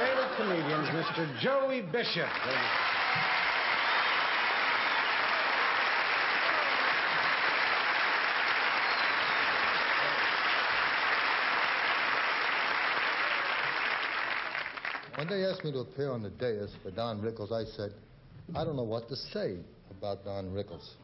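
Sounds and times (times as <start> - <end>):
audience applauding: 0.0 - 15.7.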